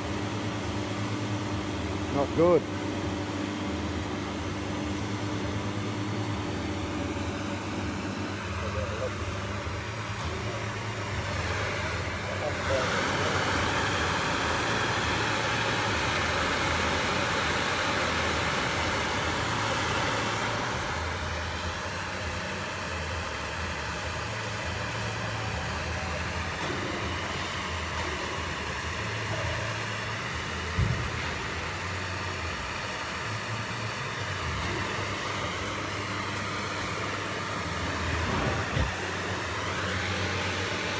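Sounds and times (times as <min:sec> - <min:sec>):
gas torch hissing: 0:00.0 - 0:40.9.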